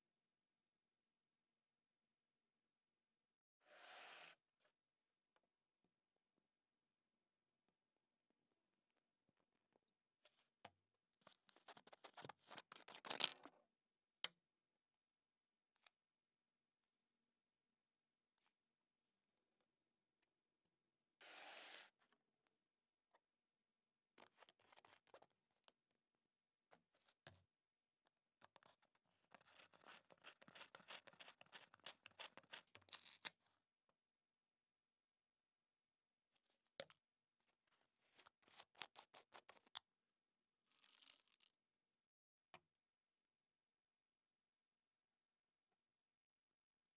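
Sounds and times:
pencil scraping in plastic cap: 29.3 - 33.3.

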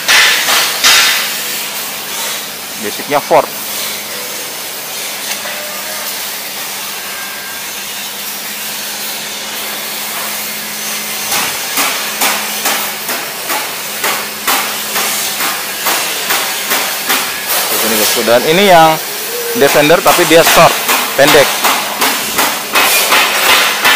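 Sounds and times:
hammer striking sheet steel: 0.0 - 2.5, 9.0 - 23.9
workshop hiss: 0.0 - 23.9.

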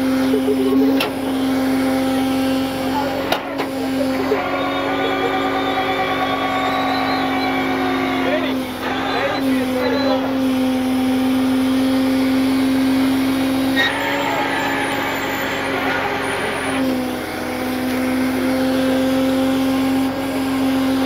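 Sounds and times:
winch whining: 0.0 - 21.0.

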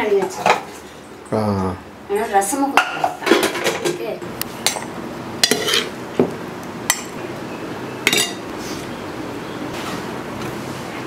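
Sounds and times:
steady background hiss: 0.0 - 11.0
metal kitchen vessels clinking: 2.7 - 6.0, 6.9 - 7.2, 8.0 - 8.5.

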